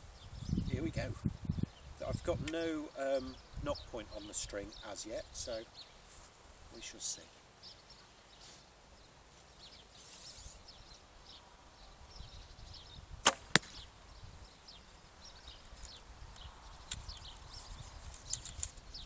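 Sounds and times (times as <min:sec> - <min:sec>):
bowstring snap: 0:13.2 - 0:13.8
arrow hitting target: 0:13.2 - 0:13.9
faint bird chirps: 0:13.7 - 0:19.0.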